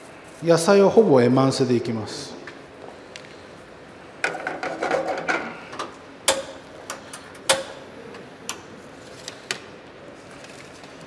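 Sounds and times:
metal kitchenware clattering: 4.2 - 5.6.

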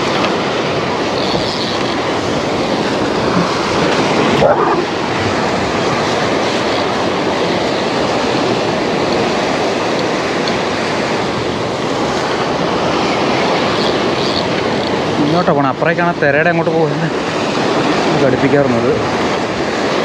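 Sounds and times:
waves breaking on rocks: 0.0 - 20.0.

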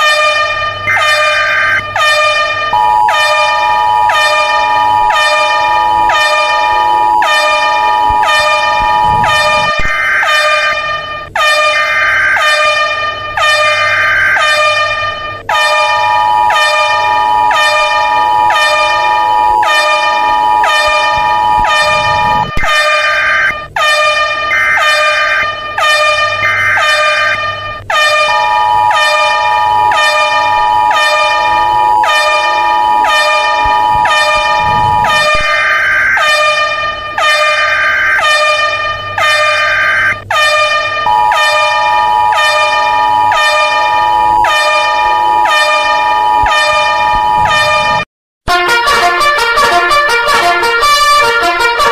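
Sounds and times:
harsh alarm horn tone: 0.0 - 51.9
high beeps: 2.8 - 10.0, 20.3 - 22.7, 28.3 - 35.8, 41.1 - 45.5
two-tone attention signal: 2.8 - 10.5, 15.9 - 23.4, 28.2 - 35.8, 41.1 - 48.0.

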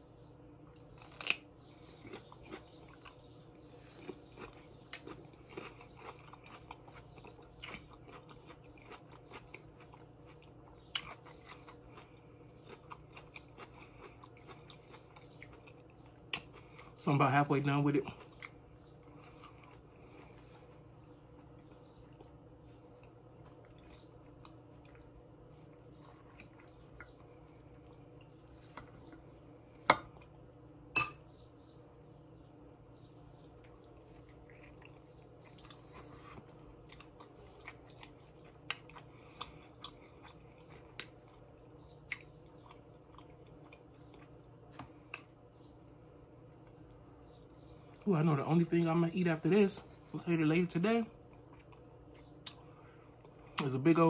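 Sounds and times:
steady low hum: 0.0 - 54.0
chewing: 0.7 - 17.0, 18.1 - 22.4, 23.0 - 30.4, 33.5 - 45.4, 51.2 - 53.6.

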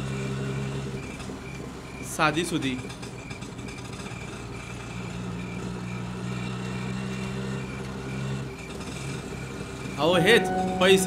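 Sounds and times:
auto-rickshaw engine running: 0.0 - 10.2
faint pulsing high tone: 10.0 - 11.0.

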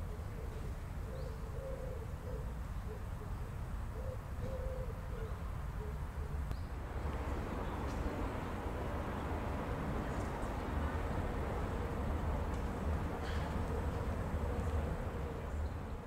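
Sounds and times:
pigeon cooing: 0.0 - 3.4, 4.0 - 6.4
steady low rumble: 6.7 - 16.0.

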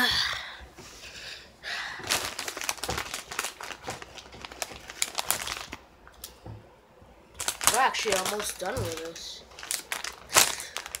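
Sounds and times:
chip bag crinkling: 2.1 - 5.8, 7.4 - 11.0.

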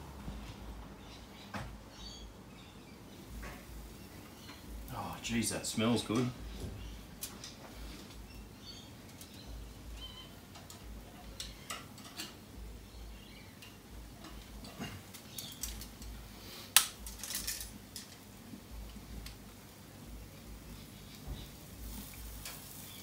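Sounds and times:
light metal clicks and clinks: 16.8 - 18.2.

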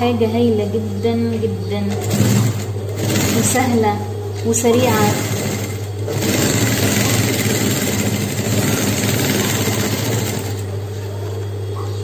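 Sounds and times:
steady low hum: 0.0 - 12.0
sewing machine stitching: 1.9 - 10.7.

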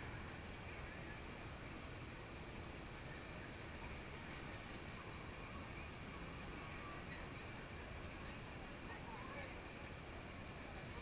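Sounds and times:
street noise: 0.0 - 11.0
faint high-pitched chirp: 0.6 - 1.8, 2.5 - 4.4, 5.1 - 7.6, 9.0 - 10.4.

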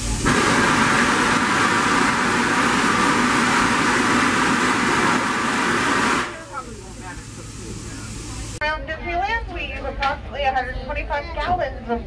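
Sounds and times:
steam hissing: 0.0 - 8.6.

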